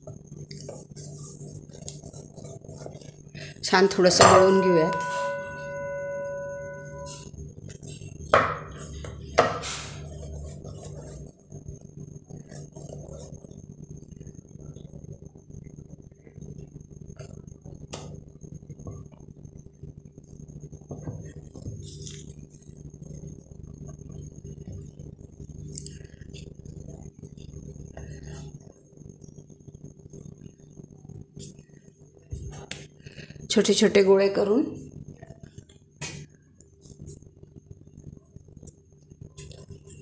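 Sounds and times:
steady low hum: 0:00.0 - 0:40.0
metal plate ringing: 0:04.0 - 0:07.2.

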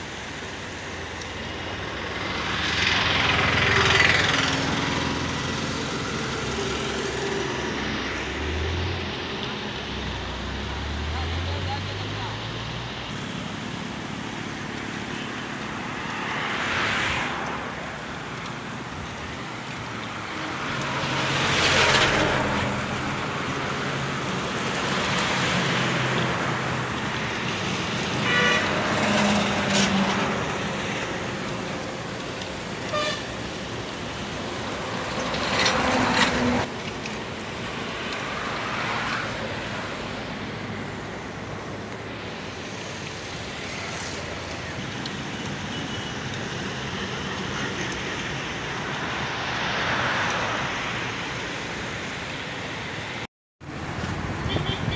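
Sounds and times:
background traffic rush: 0:00.0 - 0:54.9
vehicles passing: 0:00.0 - 0:54.9
horn toots: 0:28.2 - 0:30.0, 0:32.8 - 0:33.4.

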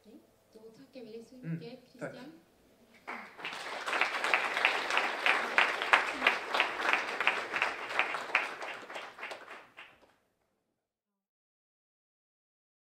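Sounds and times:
audience applauding: 0:03.0 - 0:10.1
sharp individual claps: 0:03.0 - 0:10.2.

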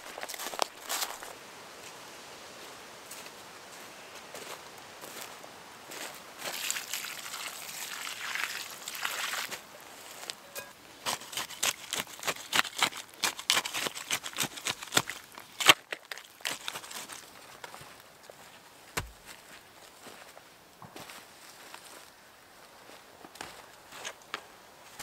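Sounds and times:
water pouring onto clay: 0:06.5 - 0:09.5
shovel stirring wet mud: 0:10.3 - 0:17.2.

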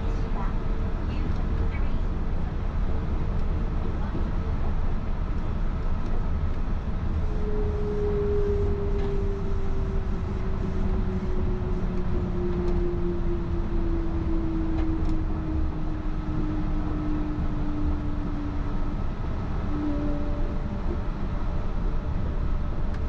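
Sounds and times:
higher whine: 0:07.2 - 0:23.0
train motor whine: 0:07.3 - 0:23.0.

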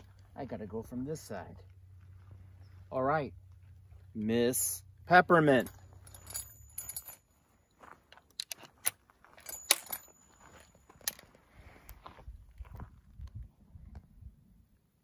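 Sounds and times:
rifle action metallic clicks: 0:08.1 - 0:10.1.

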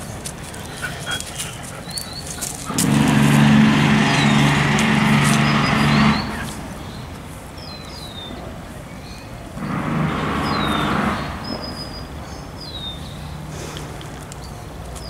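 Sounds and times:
small engine running: 0:02.5 - 0:06.8, 0:09.6 - 0:11.6
bird chirps: 0:04.1 - 0:09.8, 0:10.4 - 0:13.4.

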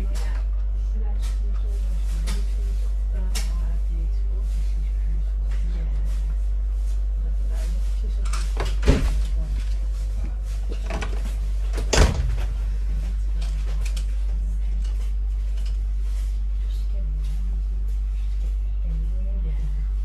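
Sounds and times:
train carriage low rumble: 0:00.0 - 0:20.0.

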